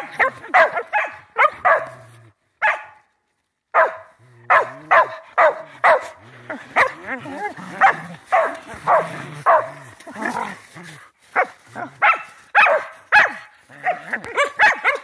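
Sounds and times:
dog barking: 0.0s - 3.0s, 3.7s - 6.2s, 6.8s - 7.0s, 7.8s - 9.8s, 11.4s - 15.0s.

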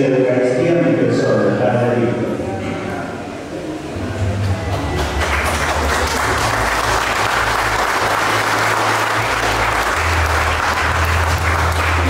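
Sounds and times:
low bass background music: 3.8s - 12.0s
crowd applauding: 4.3s - 12.0s.

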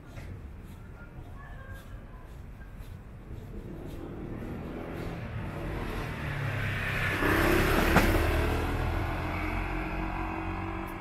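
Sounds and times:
vehicle passing by: 3.3s - 11.0s.

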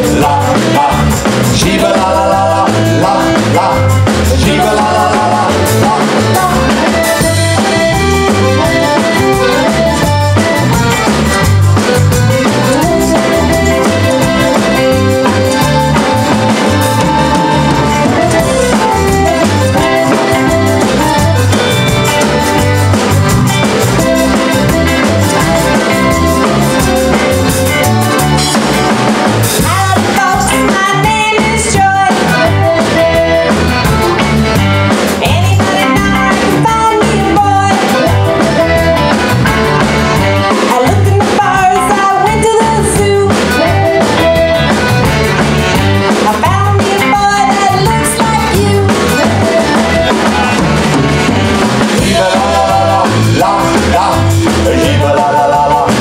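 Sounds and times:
person singing: 0.0s - 10.1s, 12.3s - 22.5s, 24.0s - 33.6s, 35.1s - 39.2s, 40.4s - 44.3s, 46.1s - 50.8s, 51.9s - 56.0s
accordion: 0.0s - 56.0s
live band playing: 0.0s - 56.0s
saxophone: 4.6s - 56.0s.

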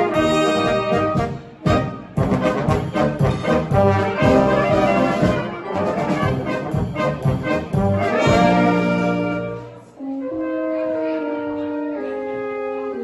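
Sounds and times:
brass band playing polka: 0.0s - 13.0s.

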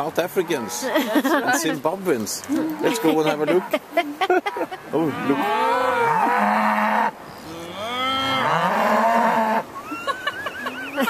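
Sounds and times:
cows mooing: 2.6s - 3.8s, 5.0s - 9.7s.

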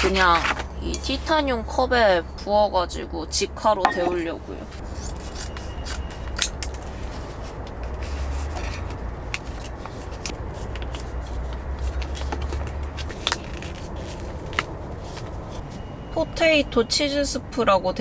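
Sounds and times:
low steady rumble: 0.0s - 16.1s.

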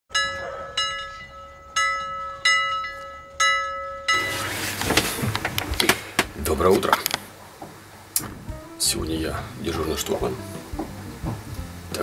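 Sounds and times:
bell-like chimes: 0.1s - 4.4s.

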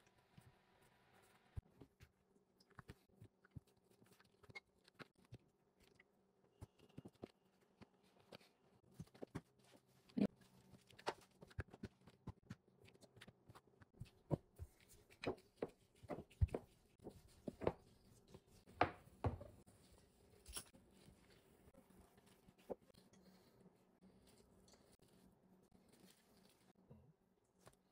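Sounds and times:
rolling pin rolling dough: 11.6s - 20.1s.

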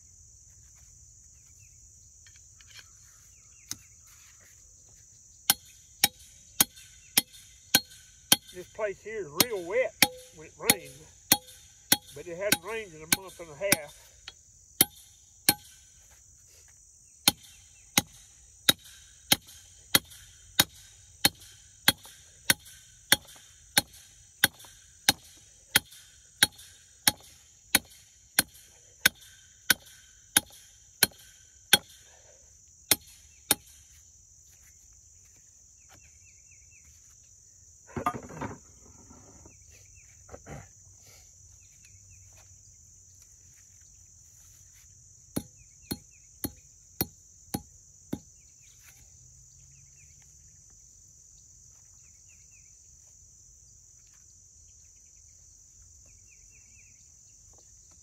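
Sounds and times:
high insect drone: 0.0s - 58.0s
scuffling rustle: 2.9s - 5.2s, 41.6s - 45.0s
hammer striking metal rod: 5.5s - 8.7s, 9.3s - 14.0s, 14.8s - 15.8s, 17.3s - 32.0s.

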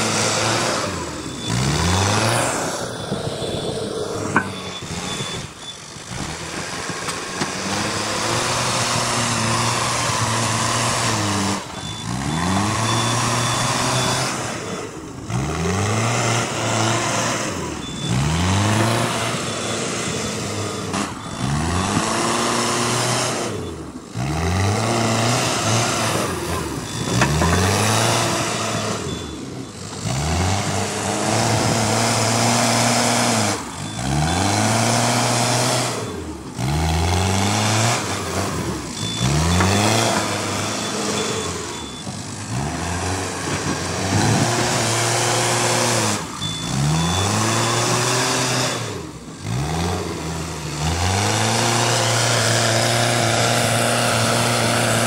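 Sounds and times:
reversing alarm beep: 0.0s - 6.8s, 8.1s - 49.0s
diesel engine revving under load: 0.0s - 55.0s.

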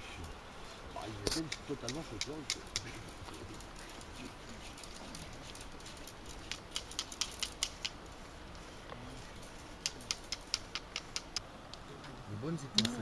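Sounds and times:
flint striking stone: 5.8s - 8.0s, 9.8s - 11.8s.

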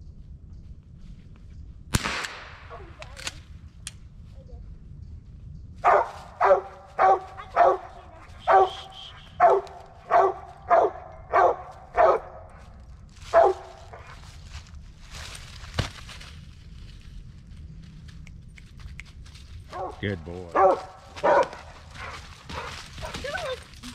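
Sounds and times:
dog barking: 5.8s - 12.7s, 13.3s - 14.2s, 19.7s - 23.6s.

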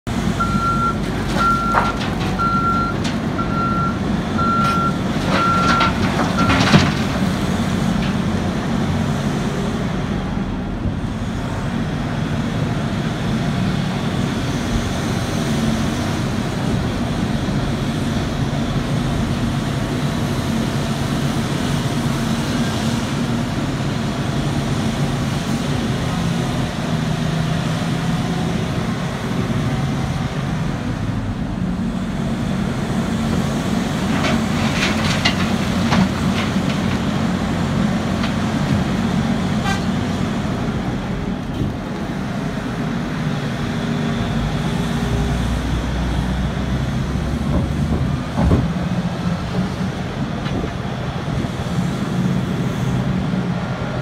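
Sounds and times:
heavy diesel engine running: 0.1s - 54.0s
reversing alarm beeping: 0.4s - 6.6s.

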